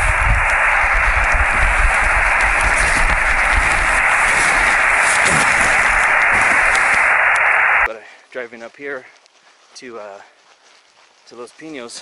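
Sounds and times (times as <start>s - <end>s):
radio static hiss: 0.0s - 7.9s.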